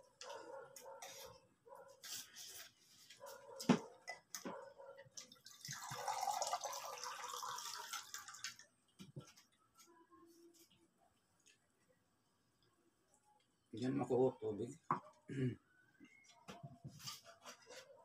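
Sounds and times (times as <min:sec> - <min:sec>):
water pouring: 0:05.2 - 0:08.7.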